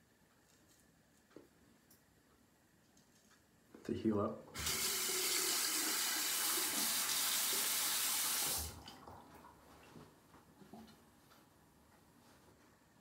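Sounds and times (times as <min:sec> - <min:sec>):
faint clicks and knocks: 0:00.2 - 0:03.8
tap water running into sink: 0:04.6 - 0:09.4.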